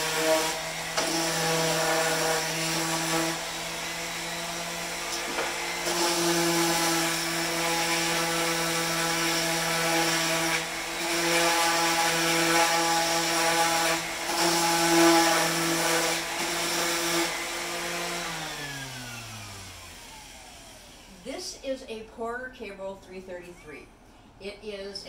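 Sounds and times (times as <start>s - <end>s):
random orbit sander running: 0.0s - 21.3s
sander motor winding down: 0.0s - 21.3s.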